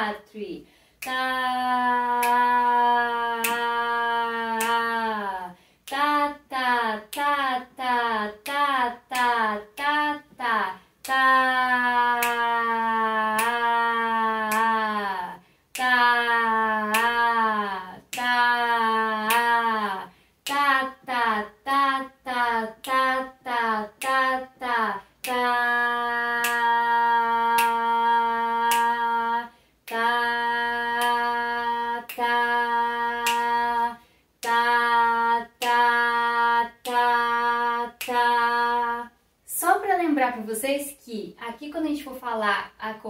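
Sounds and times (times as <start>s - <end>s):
woman chanting syllables: 0.0s - 43.0s
sharp hand beat: 26.2s - 26.8s.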